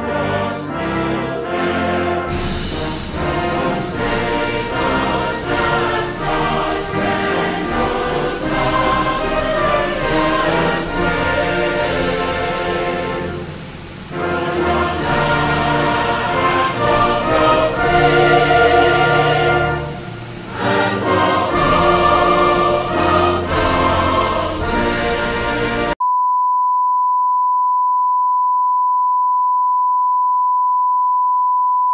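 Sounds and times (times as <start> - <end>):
orchestral music with choir: 0.0 - 26.0
steady test tone: 1.6 - 31.0.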